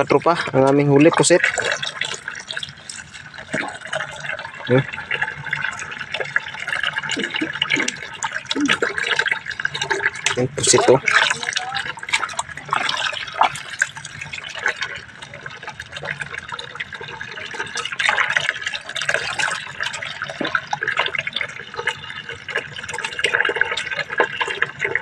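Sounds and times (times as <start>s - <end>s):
water dripping: 0.0s - 25.0s
water splashing in a tub: 0.0s - 25.0s.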